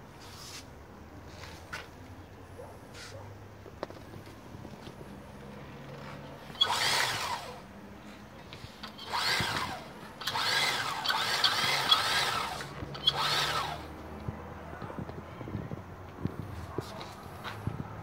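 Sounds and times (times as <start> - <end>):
small electric motor whining: 6.4 - 7.7, 8.6 - 14.1.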